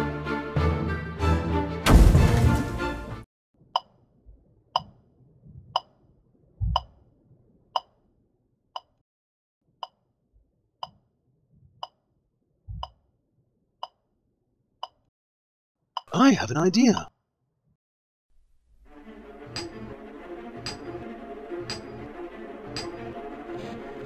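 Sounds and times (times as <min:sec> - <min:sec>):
soft low thumps: 0:06.6 - 0:07.0, 0:12.7 - 0:12.9.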